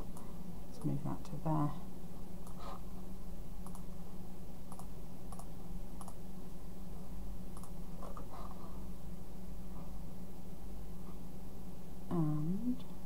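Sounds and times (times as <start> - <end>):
steady low hum: 0.0 - 13.0
computer mouse clicking: 2.4 - 2.6, 3.6 - 3.9, 4.7 - 6.2, 7.5 - 8.2.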